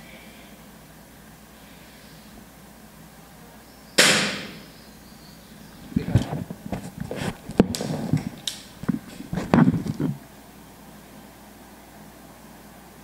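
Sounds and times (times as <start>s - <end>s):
air rifle shot: 4.0s - 4.6s.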